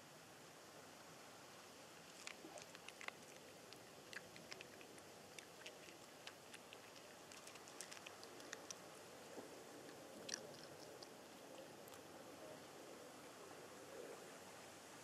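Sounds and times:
low hiss: 0.0 - 15.0
cat eating dry food: 2.0 - 12.1.

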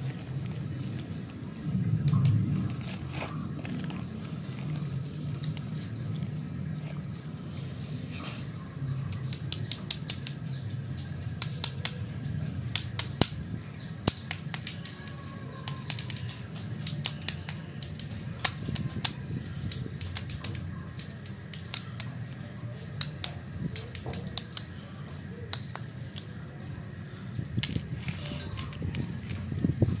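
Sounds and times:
steady low rumble: 0.0 - 9.6, 22.2 - 30.0
lollipops clicking together: 9.1 - 13.4, 14.0 - 24.8, 25.5 - 26.4, 27.6 - 29.3.

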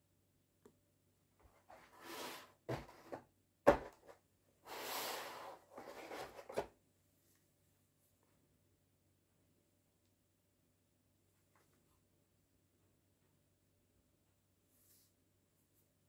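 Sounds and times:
cardboard rubbing scrapes: 1.7 - 3.2, 4.6 - 6.6.

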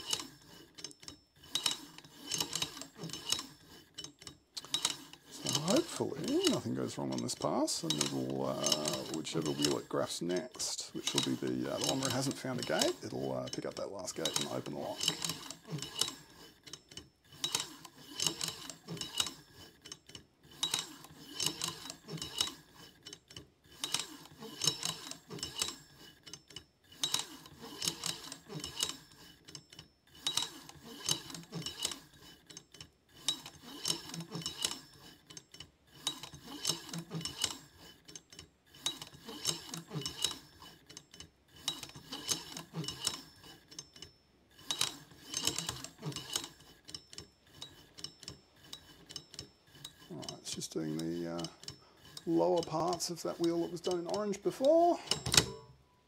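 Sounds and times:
combination lock dial clicking: 51.0 - 55.7.

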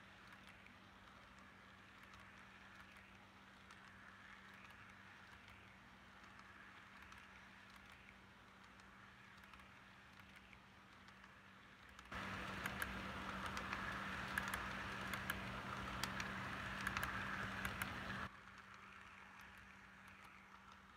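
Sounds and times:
model train cars rolling on track: 0.0 - 20.9
wheel clicks: 0.2 - 20.9
steady low hum: 11.7 - 20.9.

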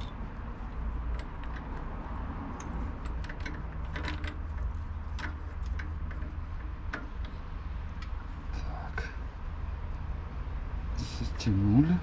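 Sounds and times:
metal clicks and rattles: 0.0 - 8.2.

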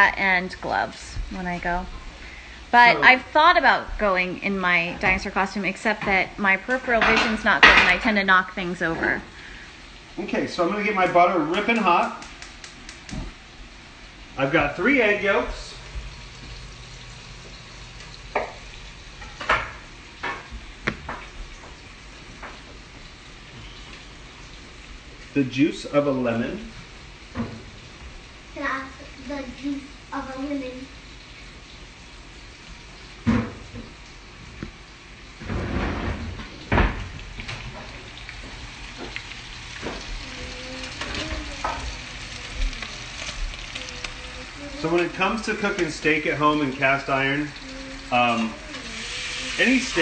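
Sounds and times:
potatoes sizzling in a pan: 0.0 - 50.0
kitchen utensils clattering: 6.8 - 8.2.

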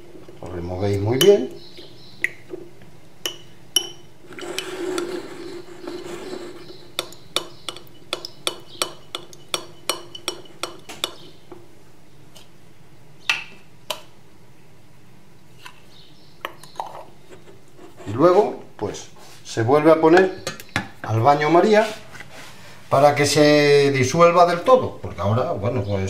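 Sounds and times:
spoon clinking against glass: 3.3 - 4.1, 7.0 - 11.2
spoon scraping in jar: 3.8 - 11.3.

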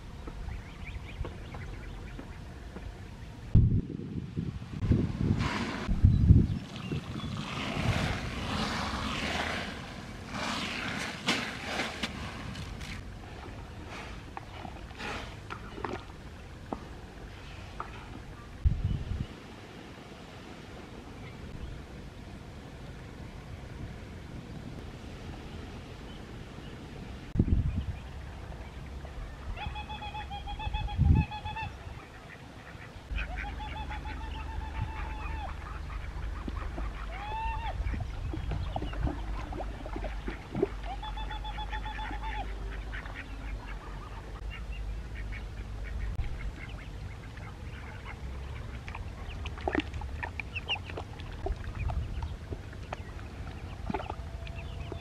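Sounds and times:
waterfowl calling: 29.5 - 38.1, 38.7 - 49.6.

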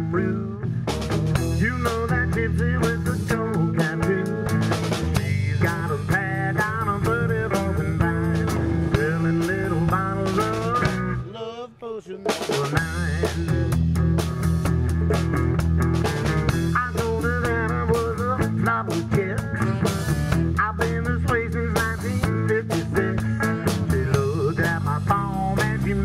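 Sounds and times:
rock music with drums and bass: 0.0 - 26.0.

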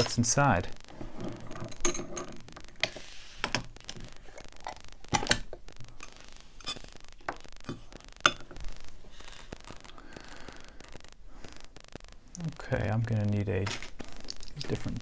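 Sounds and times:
small metallic clicks and knocks: 13.6 - 15.0.

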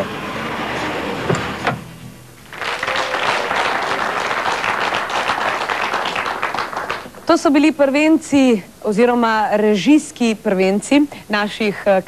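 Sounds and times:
music: 0.0 - 2.8
studio audience applauding: 2.4 - 7.3.

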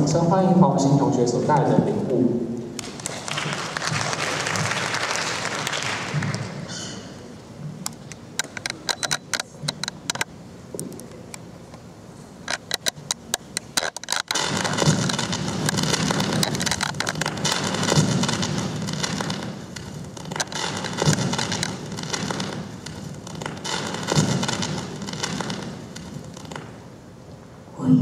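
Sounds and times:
hand claps: 2.8 - 6.7.

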